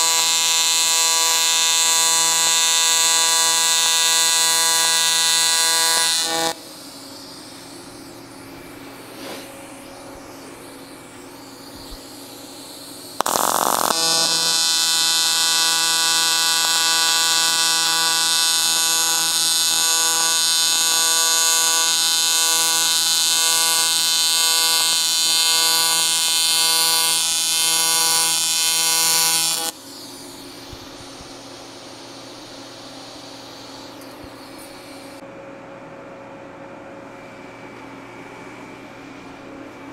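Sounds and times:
welding arc buzzing: 0.0 - 35.2
short arc hiss: 6.2 - 22.4, 28.8 - 35.2.

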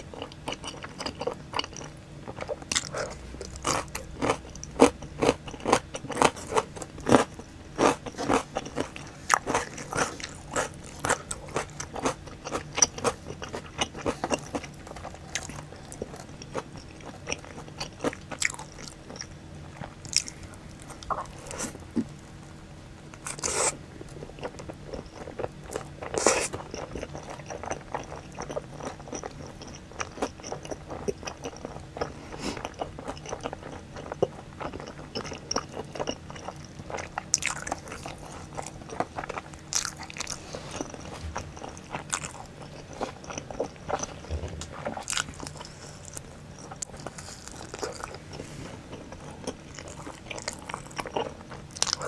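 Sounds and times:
close biting and chewing: 24.4 - 52.0.

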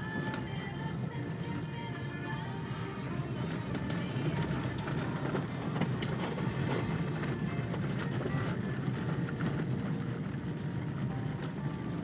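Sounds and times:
car engine and tyre rumble: 0.0 - 12.0
gravel clicks: 3.4 - 12.0.

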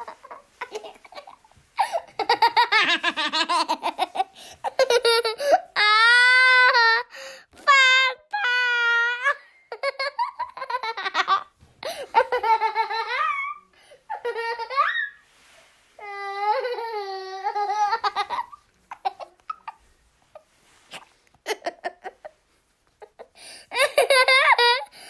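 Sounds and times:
boy laughing: 0.0 - 5.9, 9.2 - 15.2, 16.4 - 19.8, 21.4 - 22.4, 23.0 - 24.9
boy gasping: 7.1 - 7.6.

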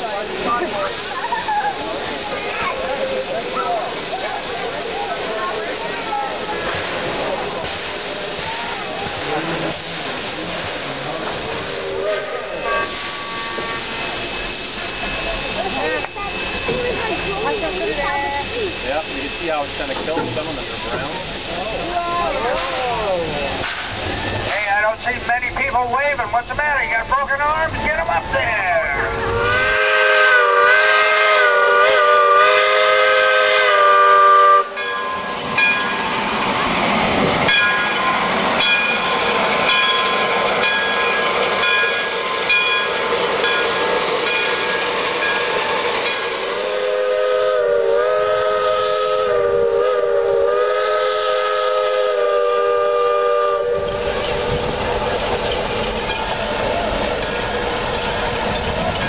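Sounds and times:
passing train running noise: 0.0 - 59.0
steam locomotive whistle: 11.7 - 16.9, 29.0 - 34.9, 44.5 - 54.2.

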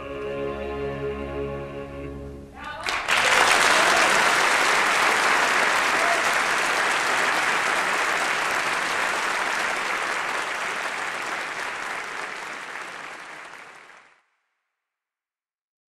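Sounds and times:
audience applauding: 2.6 - 14.2.

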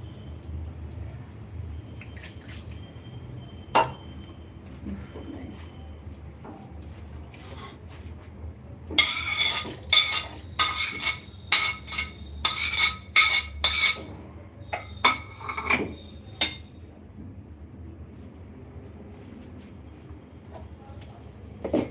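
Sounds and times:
spoon clinking against plate and jar: 9.0 - 14.1, 14.7 - 16.7
steel spoon scraping ceramic plate: 9.0 - 14.1.

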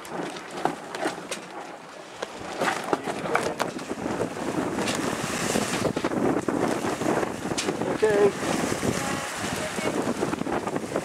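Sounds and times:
water rushing along hull: 0.0 - 11.0
wind buffeting microphone: 0.0 - 11.0.

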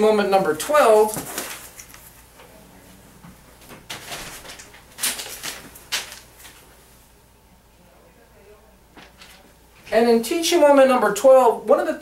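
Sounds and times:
paper sheets crackling: 0.7 - 2.2, 3.8 - 6.7.

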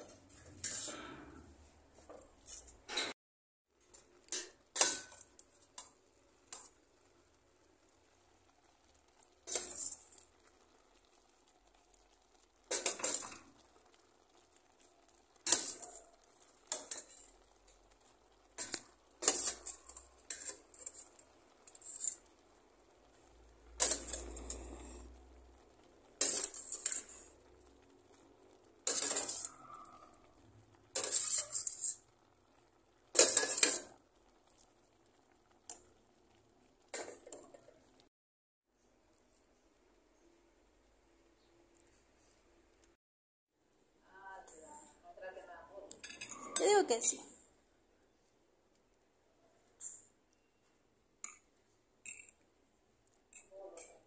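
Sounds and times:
utensil scraping and clinking in pan: 0.0 - 3.2, 3.9 - 6.8, 8.8 - 11.4, 12.0 - 32.3, 33.1 - 34.8, 45.9 - 47.3, 51.2 - 52.4, 53.3 - 54.0.

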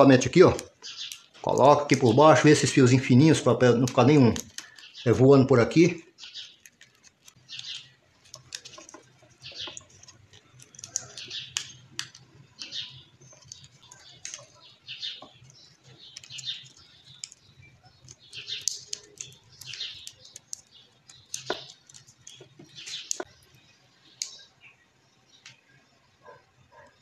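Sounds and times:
paper crinkling and rustling: 6.4 - 23.3
sharp clicks: 6.4 - 23.4.

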